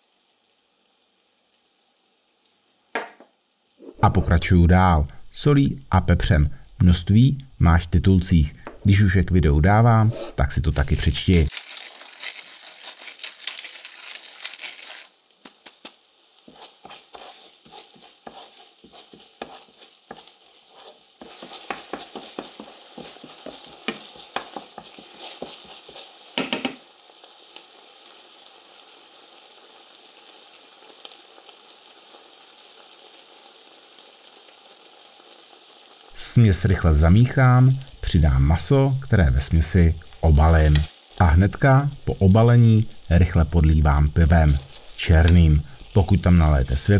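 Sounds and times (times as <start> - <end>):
sauce sizzling in a frying pan: 0.0 - 46.9
wooden spoon knocking a pan: 3.0 - 3.3, 21.2 - 26.8.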